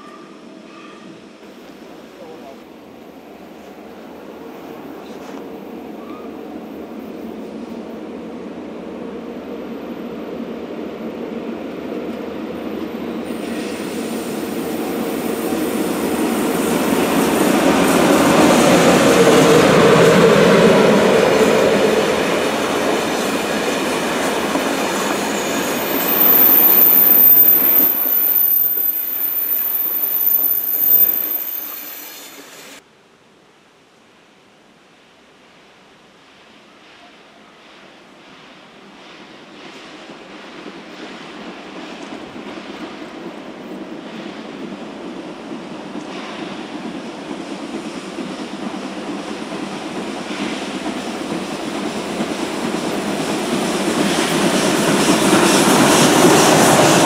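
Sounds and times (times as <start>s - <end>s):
train rumbling past: 0.0s - 32.8s, 35.0s - 57.0s
high wheel squeal: 25.1s - 32.8s.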